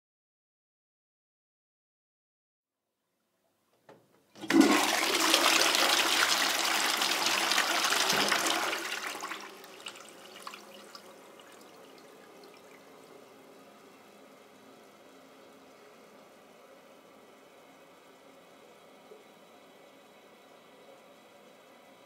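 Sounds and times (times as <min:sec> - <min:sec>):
toilet flushing: 0:04.4 - 0:16.5.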